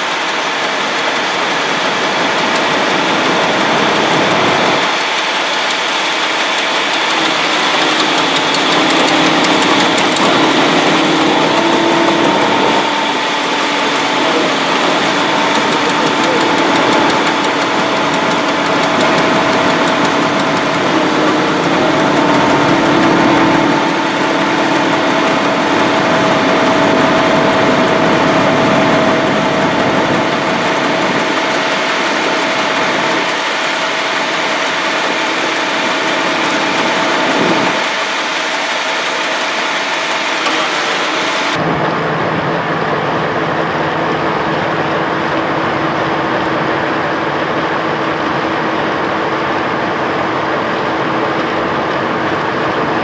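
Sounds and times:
ferry engine droning: 0:00.0 - 0:53.0.

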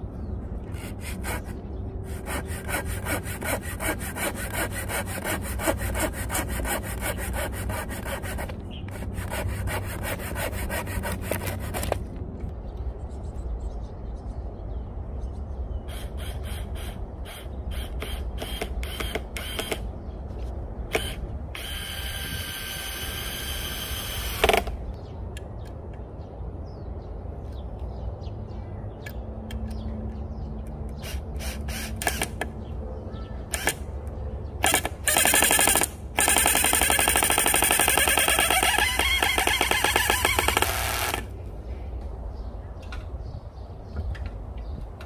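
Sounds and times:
cordless drill boring into wood: 0:21.0 - 0:24.6, 0:34.7 - 0:41.3.

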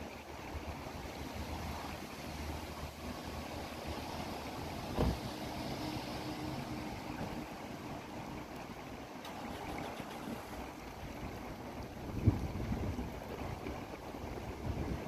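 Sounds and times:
storm water gurgling: 0:00.0 - 0:15.0
thump: 0:04.9 - 0:05.2.

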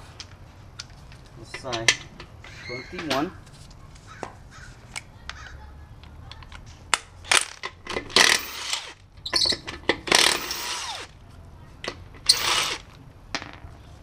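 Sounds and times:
impact wrench hammering lug nuts: 0:07.3 - 0:11.1, 0:12.2 - 0:12.8.

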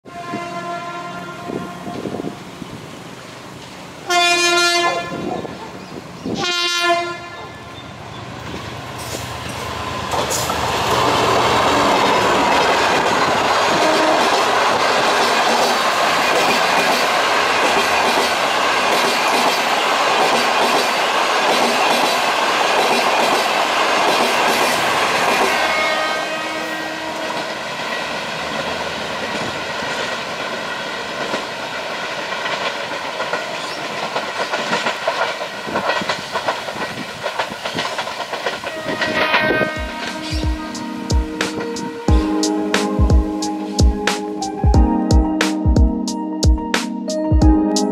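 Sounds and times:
train wheels clattering over rails: 0:08.4 - 0:25.9, 0:27.2 - 0:41.7.

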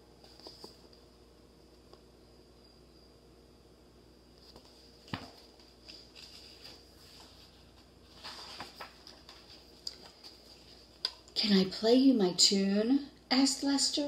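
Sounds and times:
pages rustling: 0:00.2 - 0:01.0, 0:04.4 - 0:11.2.

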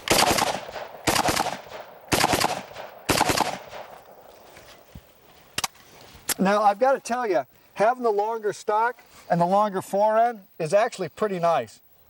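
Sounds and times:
rifle shots: 0:00.0 - 0:04.1.

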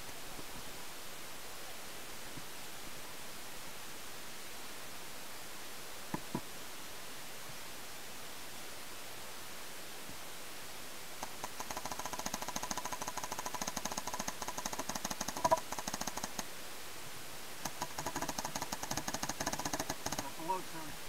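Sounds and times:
paintball marker firing: 0:11.2 - 0:16.4, 0:17.7 - 0:20.3.

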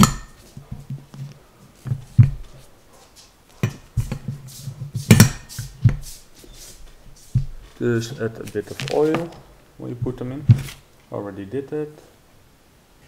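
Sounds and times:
metal valve parts knocking and clinking: 0:05.1 - 0:05.6.

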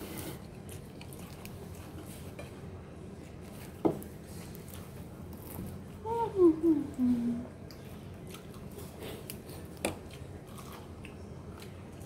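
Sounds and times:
steady background hum: 0:00.0 - 0:12.0
chewing crispy chicken: 0:00.4 - 0:02.4, 0:07.6 - 0:12.0.

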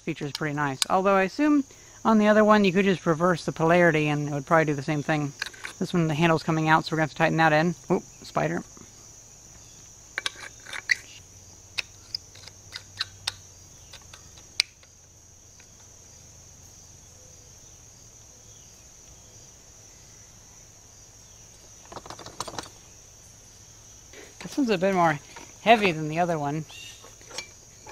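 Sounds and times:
crickets chirring: 0:00.0 - 0:27.9.

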